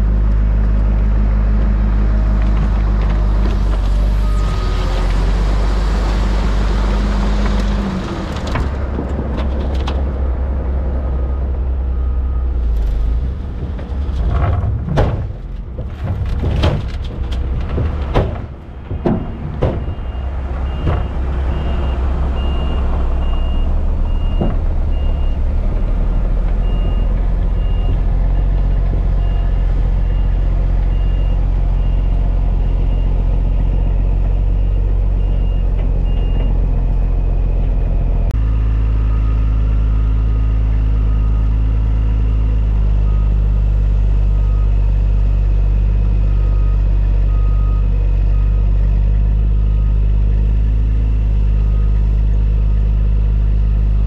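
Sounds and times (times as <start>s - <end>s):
diesel truck engine running: 0.0s - 54.0s.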